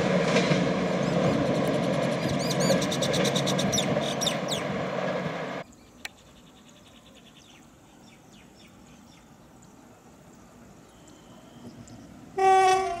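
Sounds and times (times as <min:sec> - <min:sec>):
train rumbling along track: 0:00.0 - 0:05.6, 0:09.5 - 0:13.0
bird chirps: 0:01.0 - 0:04.7, 0:10.8 - 0:12.2.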